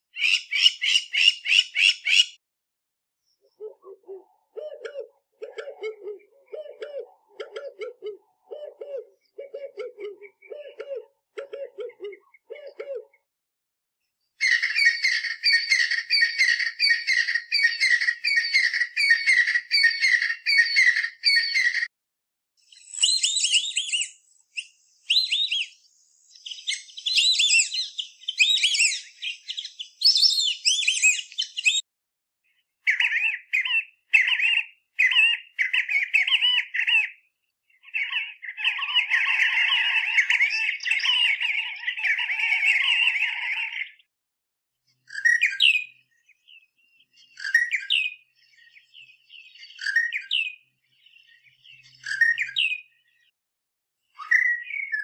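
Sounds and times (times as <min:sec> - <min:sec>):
high bird chirping: 0:00.1 - 0:02.4, 0:14.4 - 0:21.9, 0:22.6 - 0:31.8, 0:32.9 - 0:44.1, 0:45.1 - 0:53.3
repeated high bird call: 0:00.1 - 0:02.4, 0:14.4 - 0:21.9.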